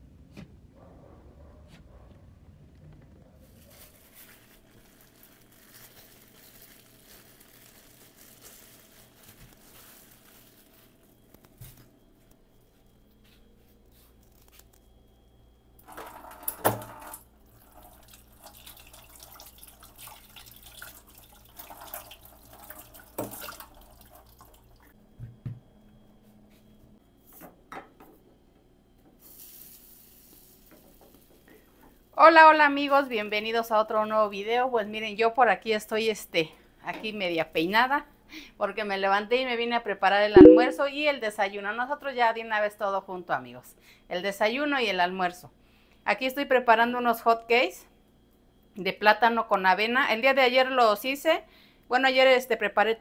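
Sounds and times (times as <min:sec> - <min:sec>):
tap water running into sink: 0:15.9 - 0:24.9.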